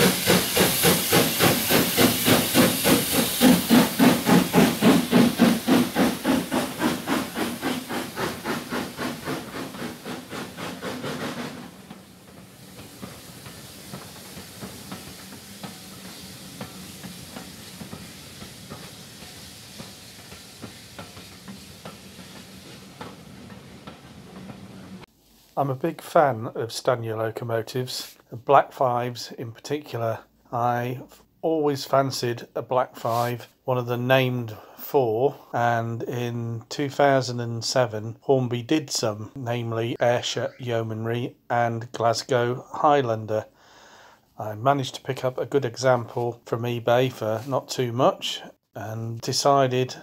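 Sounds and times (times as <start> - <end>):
steam locomotive chuffing: 0.0 - 25.1, 32.9 - 33.4, 39.0 - 47.8
steam hiss: 0.0 - 25.5, 33.0 - 33.5.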